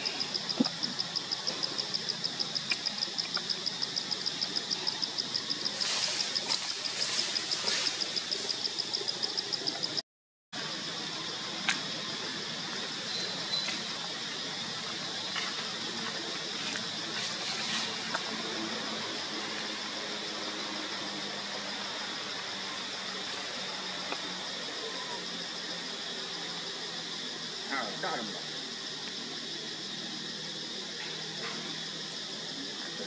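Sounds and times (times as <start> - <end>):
insects trilling: 0.0 - 10.0, 10.6 - 33.0
rustles of dry leaf litter: 5.5 - 8.7, 12.3 - 24.1.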